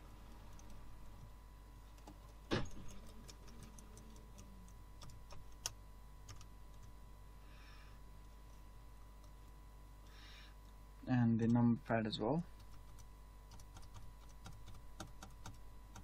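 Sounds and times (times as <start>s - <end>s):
laptop keys clicking: 12.6s - 16.0s.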